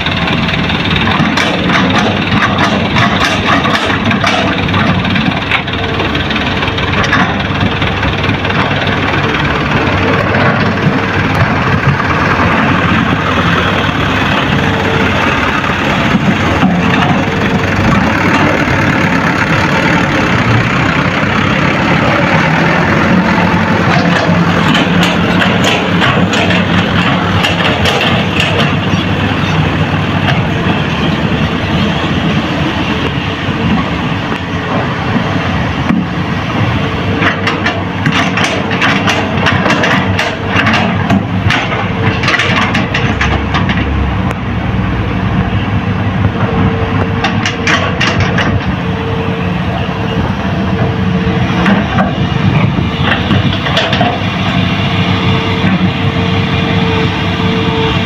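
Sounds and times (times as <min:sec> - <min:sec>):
rattling and clatter: 0:00.0 - 0:30.9, 0:34.7 - 0:44.0, 0:47.2 - 0:48.8, 0:51.6 - 0:54.6
excavator diesel engines: 0:00.0 - 0:58.0.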